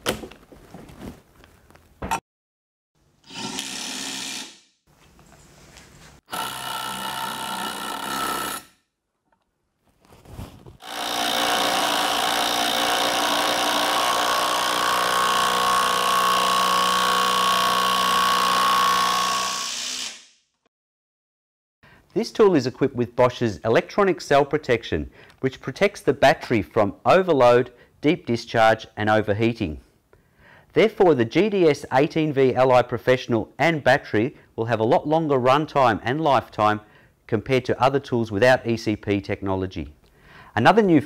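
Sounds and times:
impact wrench driving screws: 3.2 - 4.6, 6.3 - 8.8, 10.8 - 20.4.

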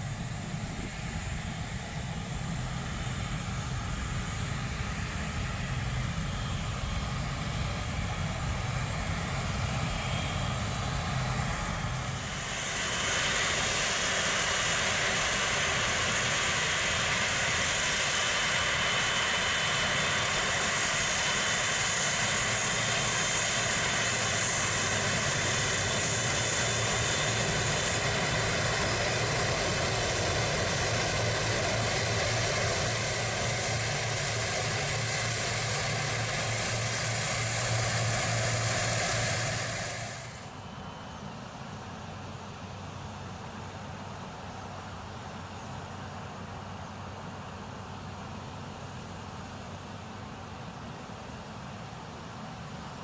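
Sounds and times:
jet engines whining: 0.0 - 41.5.

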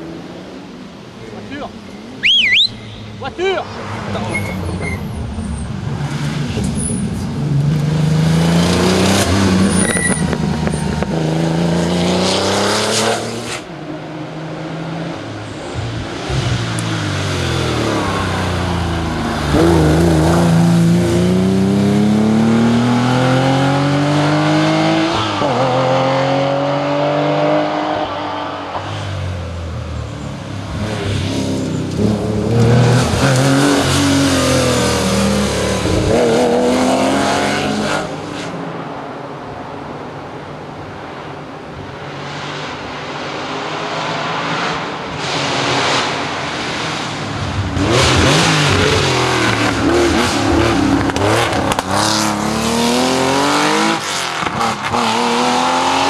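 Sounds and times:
rally car engine at full throttle: 3.6 - 56.0.

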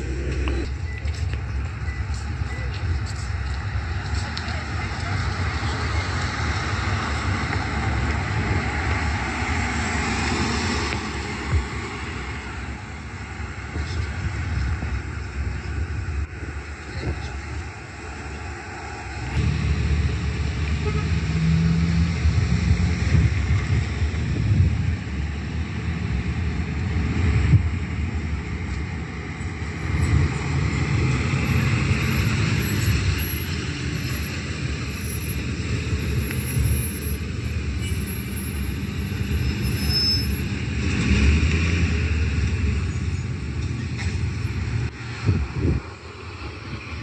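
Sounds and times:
road traffic: 0.0 - 47.0
tyres hissing on road: 0.0 - 47.0
truck engine passing by: 17.9 - 47.0.

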